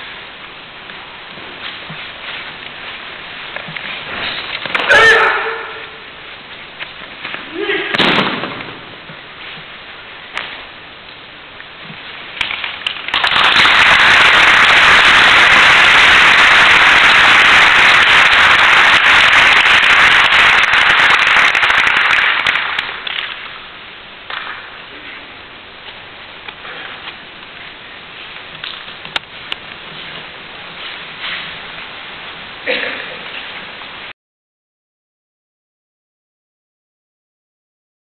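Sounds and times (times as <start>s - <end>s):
steady background noise: 0.0s - 34.1s
audience applauding: 12.4s - 23.5s.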